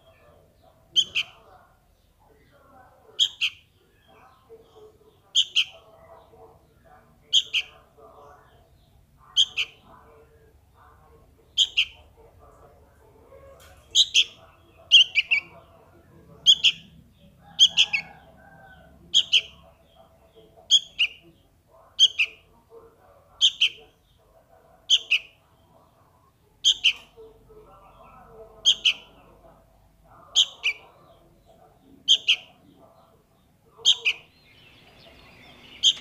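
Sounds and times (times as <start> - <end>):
fledgling bird begging calls: 7.3 - 7.9, 9.3 - 9.8, 11.5 - 12.0, 13.3 - 15.6, 16.4 - 19.8, 20.6 - 21.2, 22.0 - 22.4, 23.4 - 23.8, 26.6 - 27.1, 28.6 - 29.1, 30.4 - 30.8, 32.0 - 32.6, 33.8 - 36.0.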